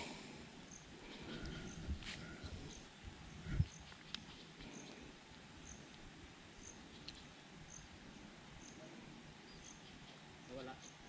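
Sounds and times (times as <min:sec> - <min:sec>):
faint high-pitched chirp: 0:08.6 - 0:11.0.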